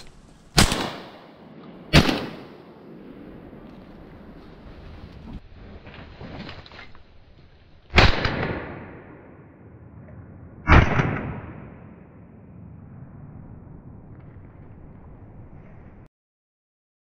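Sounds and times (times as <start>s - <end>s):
shotgun shots with echo: 0.0s - 1.3s, 1.9s - 2.6s, 7.9s - 9.2s, 10.7s - 11.8s.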